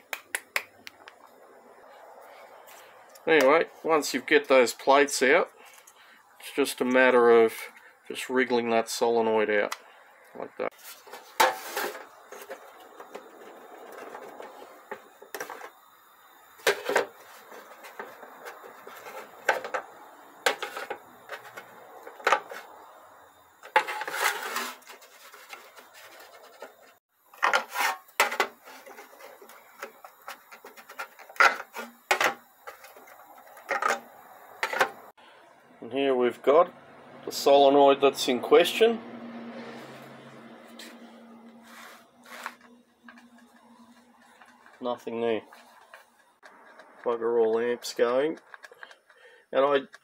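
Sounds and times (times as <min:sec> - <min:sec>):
solenoids scraping: 0:00.7 - 0:35.2, 0:39.6 - 0:50.0
parts set on metal tray: 0:10.8 - 0:15.8, 0:16.6 - 0:22.7, 0:23.6 - 0:26.7, 0:27.4 - 0:35.1
clicks and knocks of solenoids: 0:24.8 - 0:35.1, 0:42.4 - 0:50.0.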